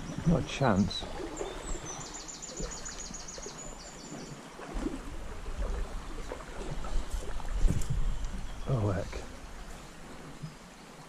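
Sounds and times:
stream rushing: 0:00.0 - 0:11.0
low rumble on microphone: 0:04.7 - 0:10.2.

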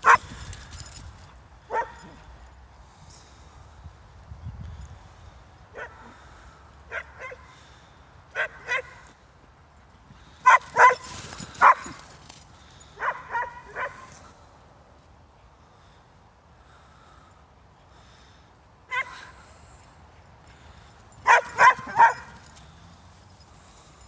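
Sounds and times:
dogs barking: 0:00.0 - 0:00.3, 0:01.7 - 0:02.2, 0:05.7 - 0:06.2, 0:06.9 - 0:07.5, 0:08.3 - 0:09.0, 0:10.4 - 0:12.0, 0:13.0 - 0:14.2, 0:21.2 - 0:22.5.

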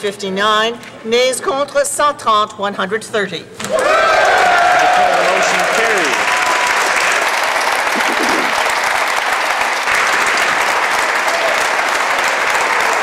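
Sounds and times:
crowd applauding: 0:03.8 - 0:13.0.

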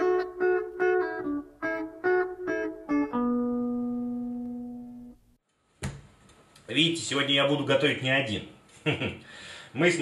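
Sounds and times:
guitar chords strummed: 0:00.0 - 0:05.3.

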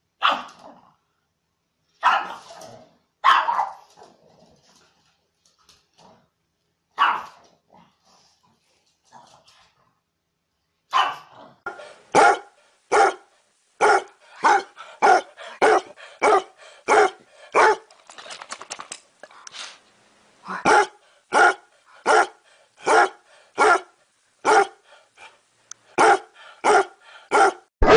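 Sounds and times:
dog barking: 0:00.2 - 0:00.5, 0:02.0 - 0:02.5, 0:03.2 - 0:03.9, 0:07.0 - 0:07.4, 0:10.9 - 0:17.9, 0:20.6 - 0:25.3, 0:26.0 - 0:27.9
fast faint rattle: 0:17.8 - 0:19.8.

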